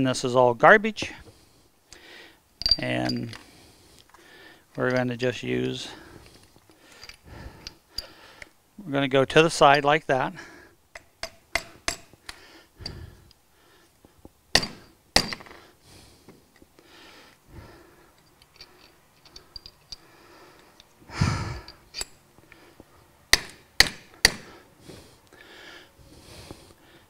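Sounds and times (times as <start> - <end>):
light metal clinks: 2.6 - 3.4, 18.2 - 20.1
hammer striking metal punch: 11.0 - 12.1, 14.5 - 15.5, 23.3 - 24.4
breathy noise: 12.2 - 14.2, 15.4 - 23.0.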